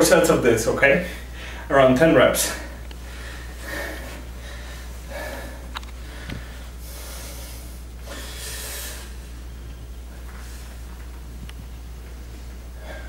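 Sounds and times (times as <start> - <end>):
man breathing hard: 1.0 - 1.7, 2.4 - 9.5, 12.7 - 13.0.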